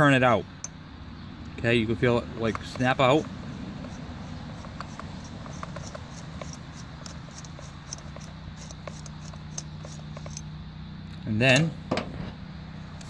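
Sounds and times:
screwdriver clicking and scraping: 2.4s - 10.5s.

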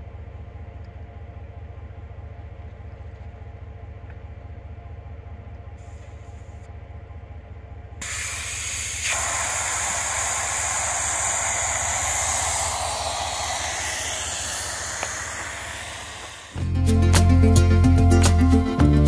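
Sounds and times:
air hissing out of tyre: 8.0s - 16.6s.

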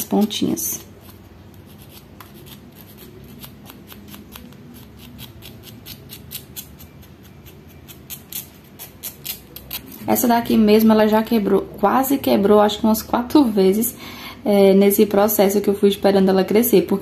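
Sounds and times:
emery board filing fingernail: 1.0s - 9.8s.

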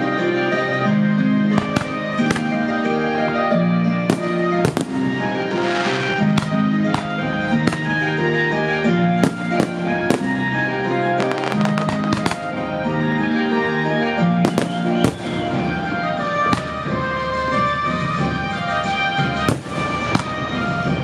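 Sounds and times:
music with long held notes: 0.0s - 21.0s
firework shells bursting: 1.5s - 2.8s, 4.1s - 8.2s, 9.2s - 10.6s, 11.2s - 12.7s, 14.4s - 17.0s.

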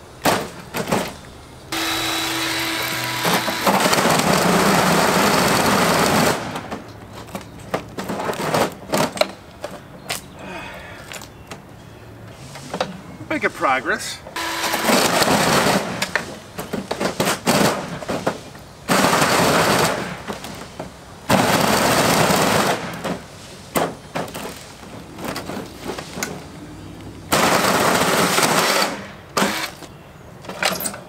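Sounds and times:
sharp rattles and knocks: 0.2s - 10.3s
electric chainsaw cutting casing: 1.7s - 6.7s, 14.4s - 16.2s, 27.4s - 29.9s.

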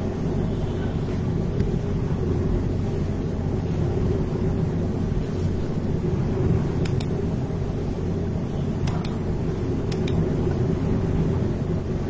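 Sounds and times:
low background rumble: 0.0s - 12.0s
computer mouse clicking: 6.8s - 7.2s, 8.8s - 9.2s, 9.9s - 10.2s.

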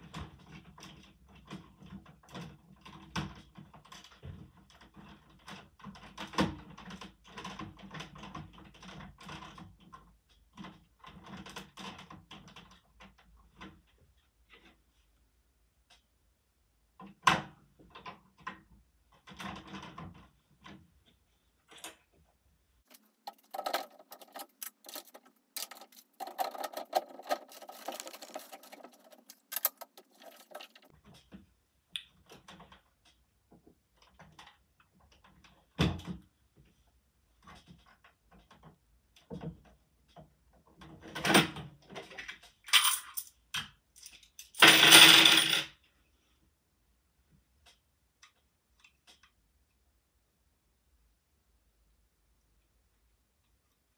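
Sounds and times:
plastic bricks clicking and rattling: 22.9s - 31.0s.

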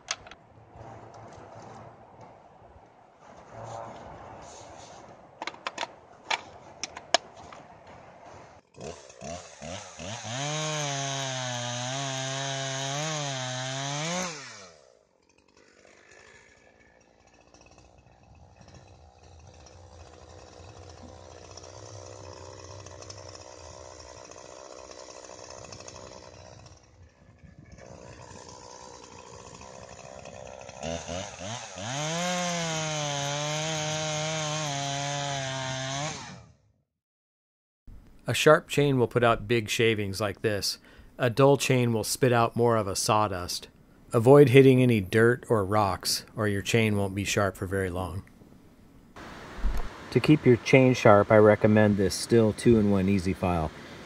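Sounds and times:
chainsaw cutting into log: 8.5s - 36.7s, 49.2s - 50.1s
chainsaw revving: 8.7s - 36.6s.

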